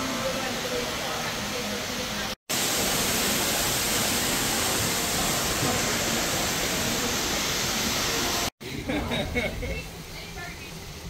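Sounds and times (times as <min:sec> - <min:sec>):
fountain water jets rushing: 0:00.0 - 0:08.5.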